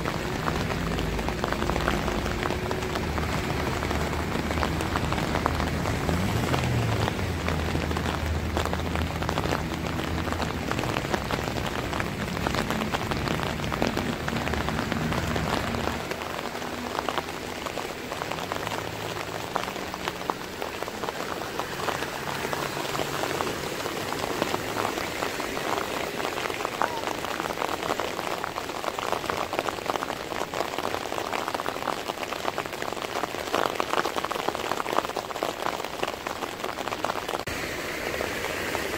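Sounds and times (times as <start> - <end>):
vehicle engine running low: 0.0 - 27.4
heavy rain pouring: 0.0 - 38.9.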